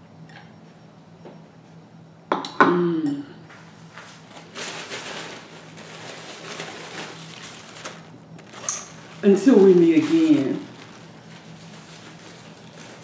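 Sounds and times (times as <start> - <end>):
napkin rustling: 4.0 - 13.0.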